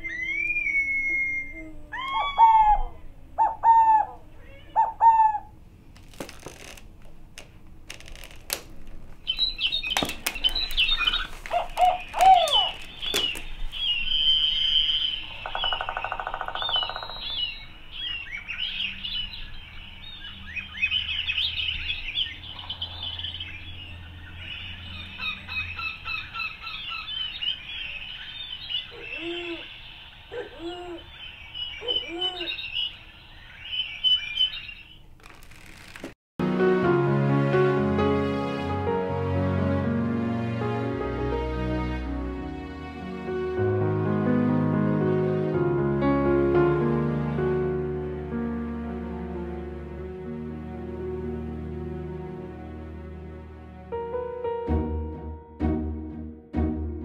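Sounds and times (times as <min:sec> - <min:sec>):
bird-like chirps and whistles: 0:00.0 - 0:02.9, 0:09.3 - 0:35.0.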